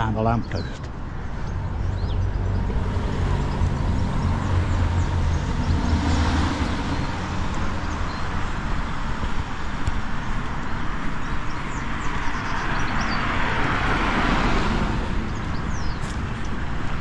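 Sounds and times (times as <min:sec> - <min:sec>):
vehicle driving past: 0:01.5 - 0:08.1.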